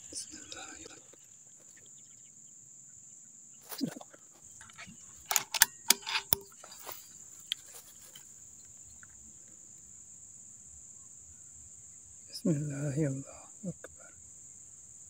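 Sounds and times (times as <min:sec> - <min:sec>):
crickets chirring: 0:00.0 - 0:15.0
air rifle clicks and knocks: 0:05.3 - 0:06.5.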